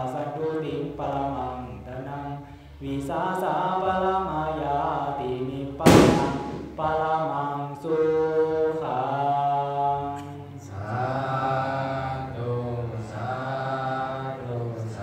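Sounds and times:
man chanting into microphone: 0.0s - 10.0s.

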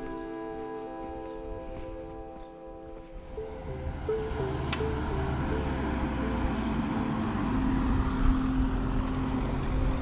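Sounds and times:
car driving past: 3.3s - 10.0s.

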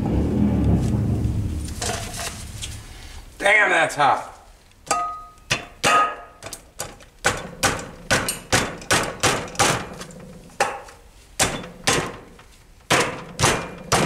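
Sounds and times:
hammer striking metal: 4.9s - 6.4s, 7.2s - 12.3s, 12.9s - 14.0s.

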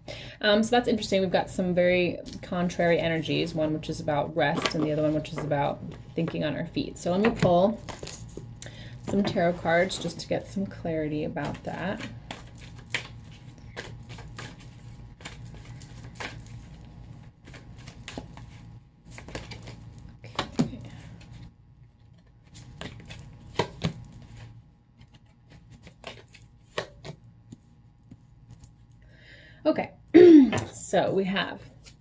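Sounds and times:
cards being shuffled: 11.4s - 28.9s.

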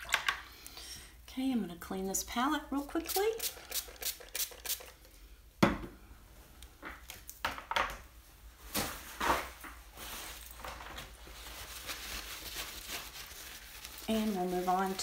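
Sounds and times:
soft steady hiss: 0.0s - 15.0s.

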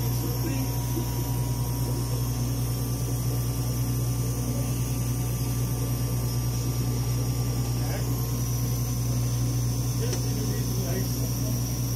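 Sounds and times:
analyzer humming with fan noise: 0.0s - 11.9s.

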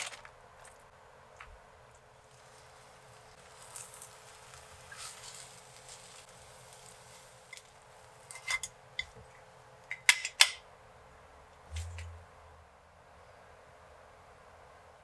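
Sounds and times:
chopsticks scraping frying pan: 7.5s - 9.1s.

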